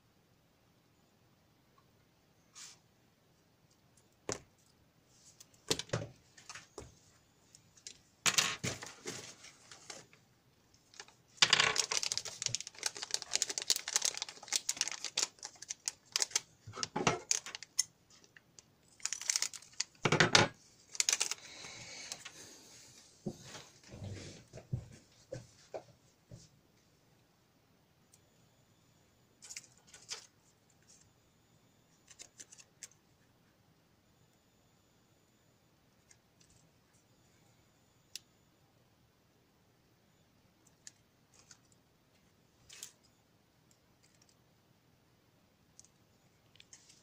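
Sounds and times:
clicks and rattles of small parts: 10.9 - 18.3.

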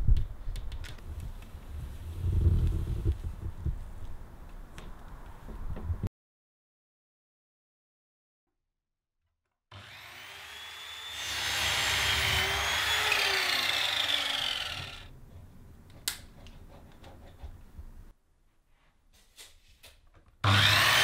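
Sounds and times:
electric mitre saw cutting wood: 9.7 - 15.1, 20.4 - 21.0.

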